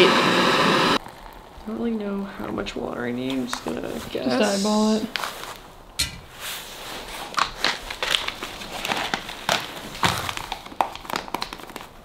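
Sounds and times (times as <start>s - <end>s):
food pouch crinkling: 7.3s - 12.0s.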